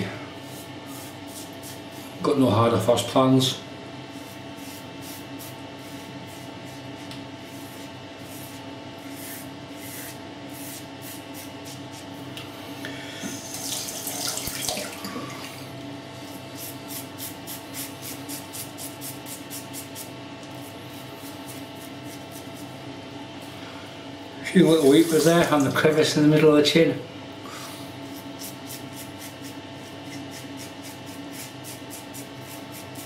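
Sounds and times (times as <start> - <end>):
razor scraping stubble: 4.1 - 12.1, 16.3 - 22.8, 28.0 - 33.0.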